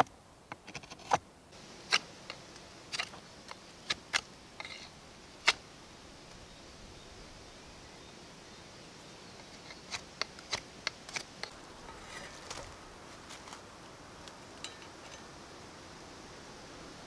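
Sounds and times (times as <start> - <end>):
soft scraping: 11.1 - 15.3.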